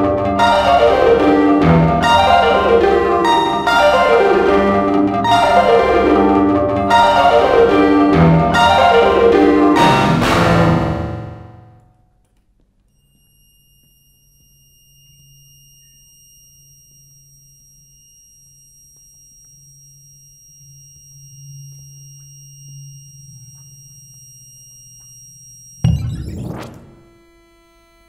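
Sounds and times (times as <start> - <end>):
electric guitar low drone: 0.0 - 11.8
loud struck guitar chord: 0.0 - 11.8
high-pitched whine: 14.5 - 27.3.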